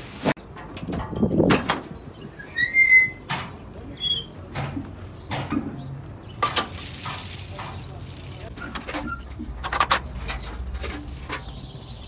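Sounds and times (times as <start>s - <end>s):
light metallic jingle: 6.4s - 12.0s.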